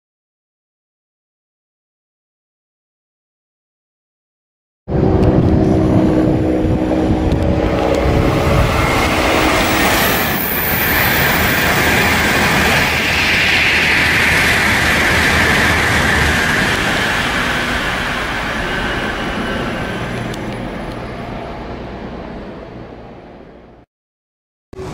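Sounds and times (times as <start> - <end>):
high hiss of passing train: 4.9 - 23.7
train rushing past: 4.9 - 23.8.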